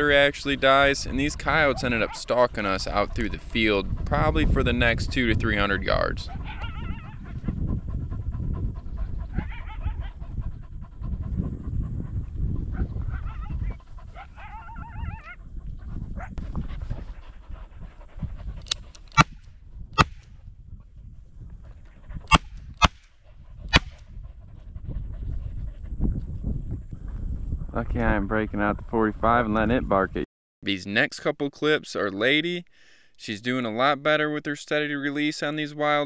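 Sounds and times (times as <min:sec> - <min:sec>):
panting: 0:01.4 - 0:19.0, 0:23.2 - 0:26.0.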